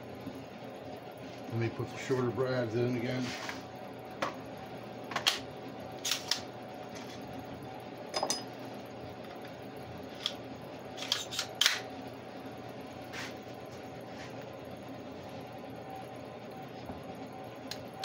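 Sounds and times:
faint metallic ring: 8.2s - 8.5s.

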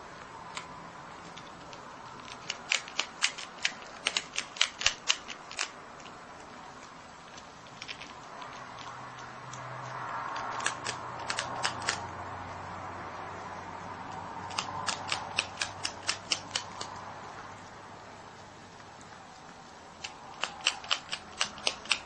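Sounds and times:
animal crunching a cracker: 0.5s - 12.1s, 14.1s - 17.1s, 19.1s - 22.0s.

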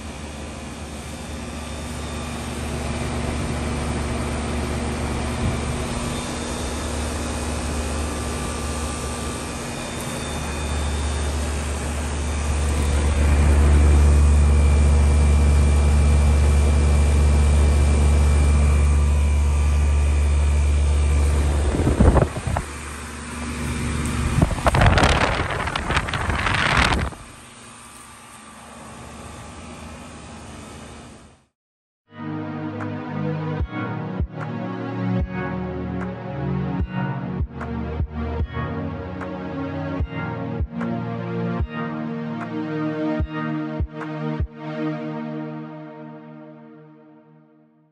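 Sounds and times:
heat pump humming: 0.0s - 31.3s
loud rushes of noise: 0.8s - 27.6s.

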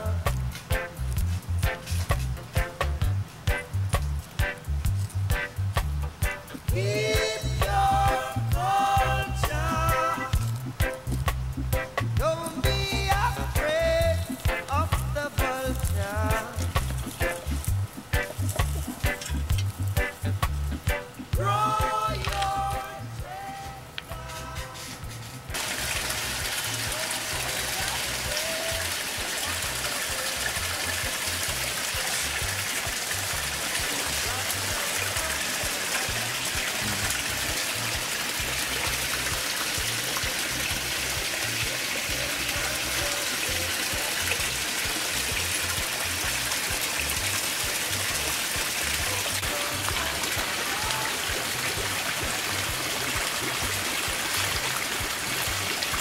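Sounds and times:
background music with bass: 0.0s - 56.0s
water trickling into pond: 12.5s - 21.4s, 25.5s - 56.0s.

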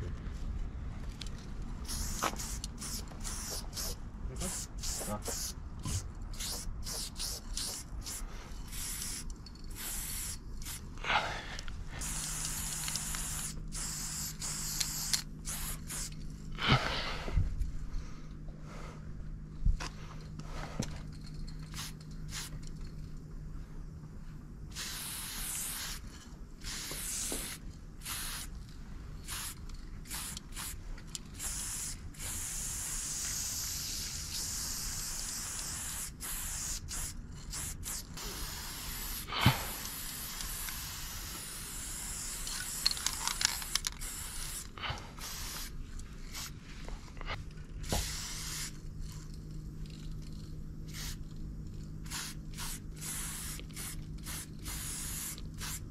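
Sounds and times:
spray-paint cans hissing: 1.8s - 10.9s, 12.0s - 16.2s, 21.5s - 22.7s, 24.7s - 28.6s, 29.2s - 46.5s, 47.8s - 49.2s, 50.3s - 51.3s, 52.0s - 55.9s.

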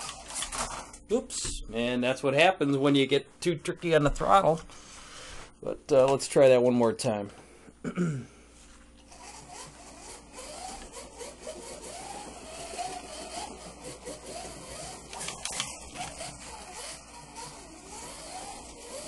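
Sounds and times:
slot car motor whining: 0.0s - 0.9s, 9.1s - 19.0s.

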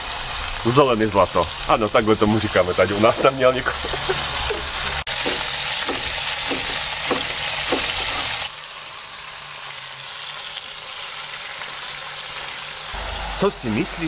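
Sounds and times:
onions and garlic sizzling: 0.0s - 14.0s
knife chopping on a board: 3.9s - 8.4s.

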